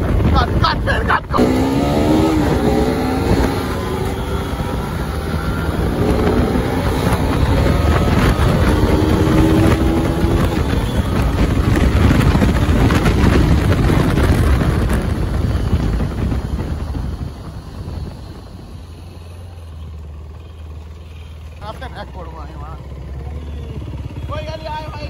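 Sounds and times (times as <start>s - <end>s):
wind noise on microphone: 0.0s - 19.1s
motorcycle engine revving: 0.0s - 25.0s.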